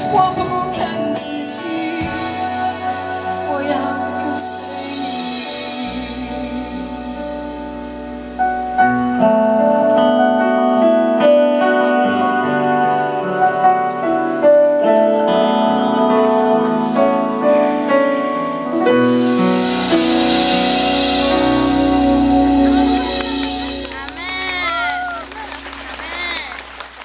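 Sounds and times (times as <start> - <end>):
keyboard chords: 0.0 - 27.0.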